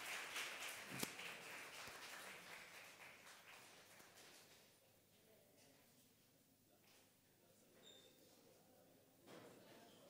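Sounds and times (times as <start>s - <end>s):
faint high-pitched squeak: 7.7s - 8.5s.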